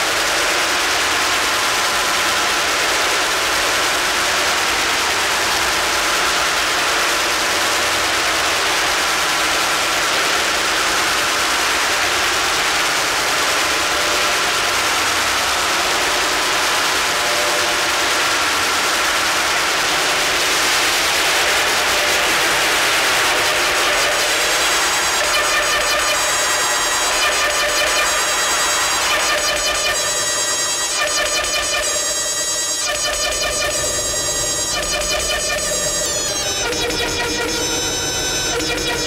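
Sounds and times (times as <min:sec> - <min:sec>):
electronic noise and feedback: 0:20.2 - 0:39.0.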